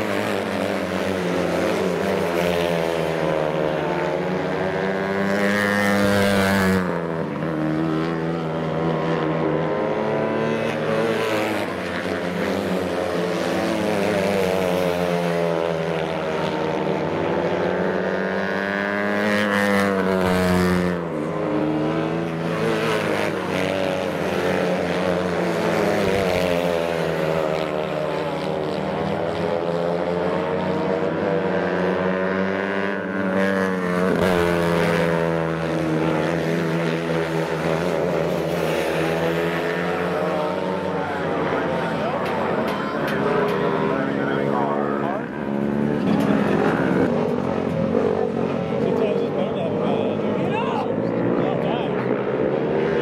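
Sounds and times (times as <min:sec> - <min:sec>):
racing kart engines: 0:00.0 - 0:53.0.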